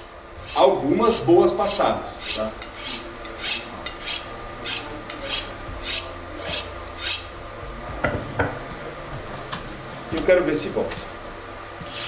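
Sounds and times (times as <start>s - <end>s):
knife scraping on honing rod: 0.4s - 7.4s.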